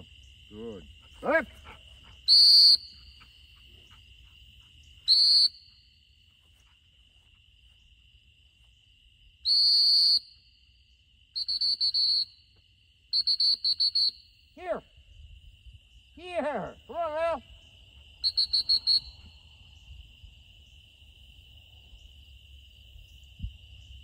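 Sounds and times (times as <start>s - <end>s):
high insect chirring: 0.0s - 24.0s
dog training whistle blasts: 2.3s - 3.1s, 5.1s - 5.8s, 9.4s - 10.4s, 11.4s - 12.5s, 13.1s - 14.4s, 18.2s - 19.3s.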